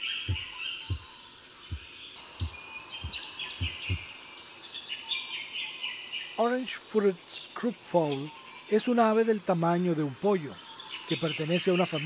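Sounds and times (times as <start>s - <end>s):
soft low thuds: 0.0s - 4.2s
birds chirping: 0.0s - 12.0s
insects chirping: 0.0s - 12.0s.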